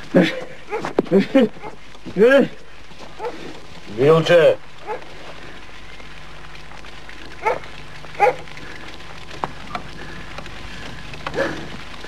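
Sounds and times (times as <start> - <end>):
steady background hiss: 0.0 - 12.0
dog barking: 3.2 - 3.4, 4.8 - 5.1, 7.4 - 8.4, 11.3 - 11.7.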